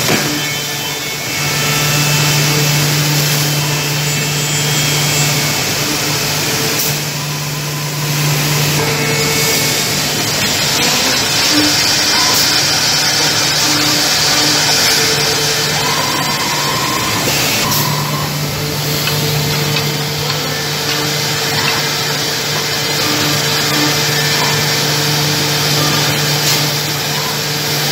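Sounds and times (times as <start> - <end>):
router spindles whirring: 0.0 - 27.8
machine hum: 0.0 - 27.9.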